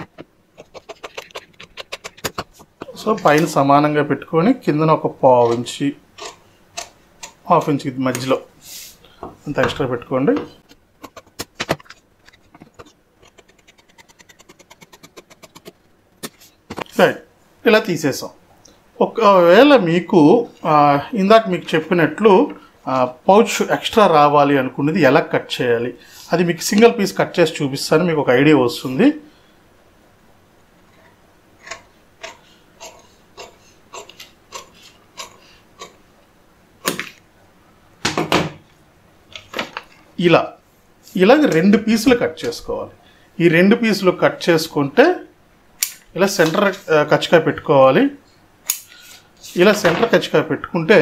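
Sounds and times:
paper crackling: 0.0 - 2.7
sharp click: 45.8 - 46.6, 48.6 - 49.0.

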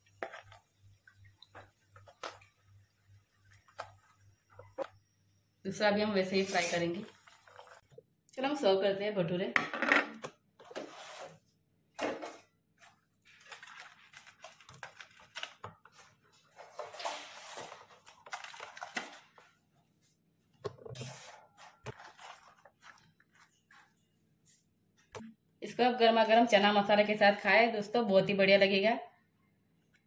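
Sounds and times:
soft rustling of fried bread: 12.4 - 25.1.

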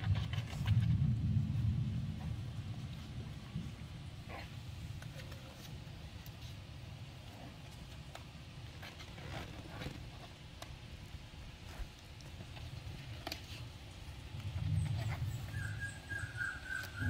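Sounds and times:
low rumble: 0.0 - 5.1, 14.0 - 17.0.

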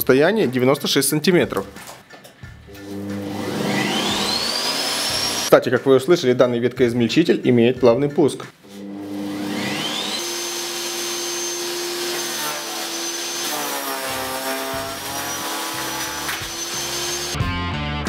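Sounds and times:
shredder motor whining: 2.8 - 5.5, 8.8 - 17.4.

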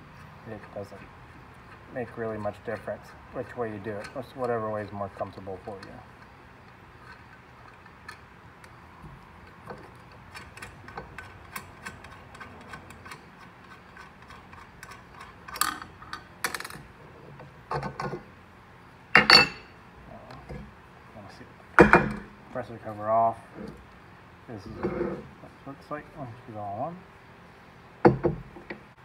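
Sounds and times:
metal clanks on steel table: 19.2 - 19.7.

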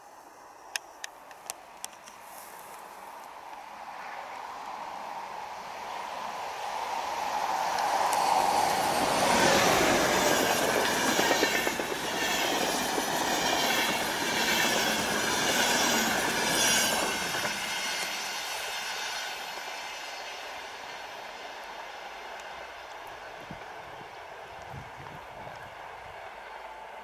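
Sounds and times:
locomotive whine: 5.3 - 27.0
train wheels clattering over rails: 7.8 - 19.7.

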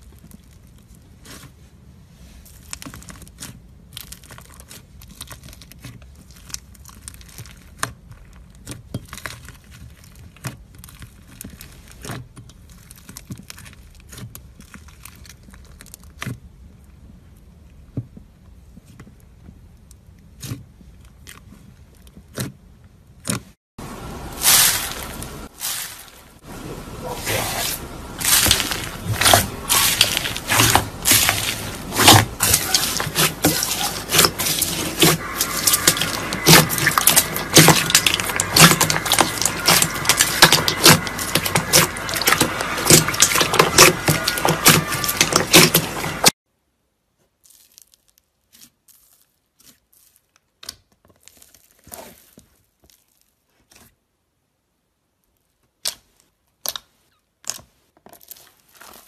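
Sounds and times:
slime crackling and clicking: 28.2 - 45.9, 55.8 - 59.0.

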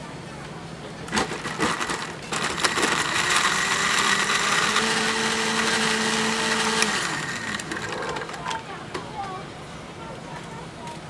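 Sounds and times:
blender motor running: 1.2 - 8.5.

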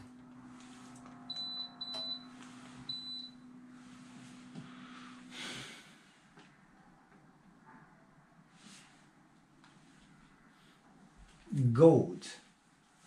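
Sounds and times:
steady low hum: 0.0 - 11.8
soft breath-like rush: 3.7 - 6.4.

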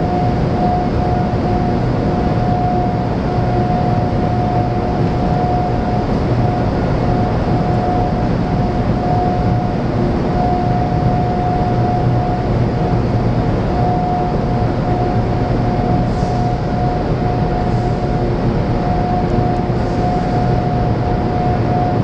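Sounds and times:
high-pitched machine whine: 0.0 - 22.0
low machinery hum: 0.0 - 22.0.

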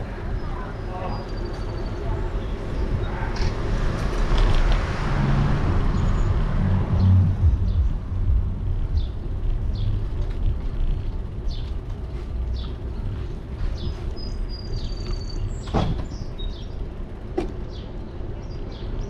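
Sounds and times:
cars passing close by: 0.0 - 19.0
wind rumble on microphone: 0.0 - 19.0.

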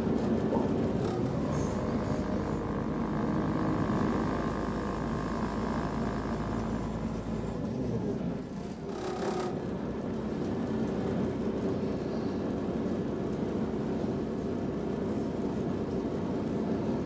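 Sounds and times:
wheels on rails: 0.0 - 4.6, 6.3 - 11.1
train diesel engine rumble: 0.0 - 17.0.

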